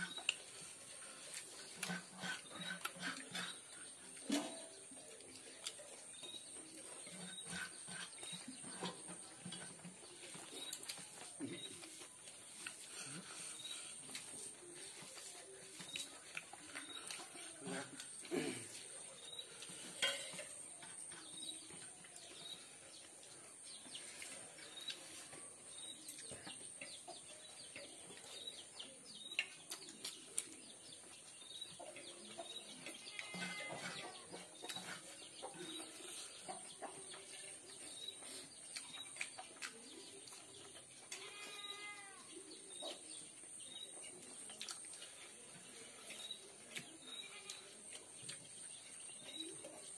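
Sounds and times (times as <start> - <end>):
birds chirping: 0.0 - 49.9
chewing and lip smacks: 14.1 - 18.2, 29.2 - 31.2, 38.2 - 41.2, 44.1 - 48.5.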